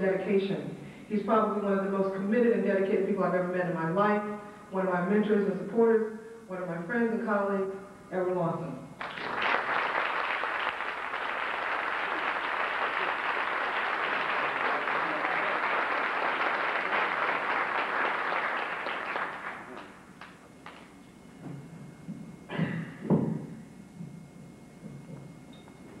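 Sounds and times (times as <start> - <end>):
audience applauding: 9.0 - 20.9.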